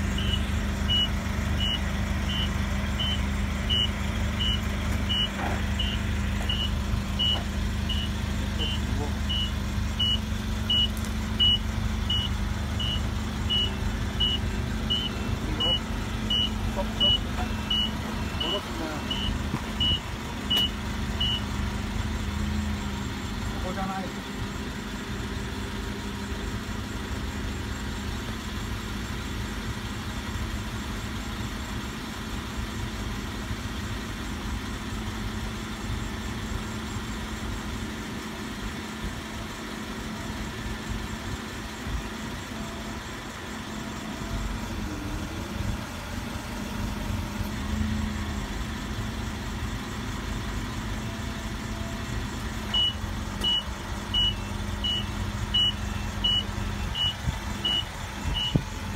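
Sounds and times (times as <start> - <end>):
forklift engine running: 0.0 - 58.9
reversing alarm beeps: 0.1 - 21.6, 51.0 - 58.8.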